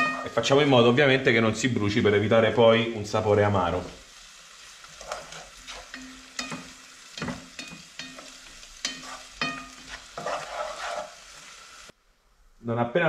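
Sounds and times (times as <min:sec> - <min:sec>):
steady sizzle: 0:00.0 - 0:13.0
utensil stirring and scraping: 0:04.9 - 0:11.6.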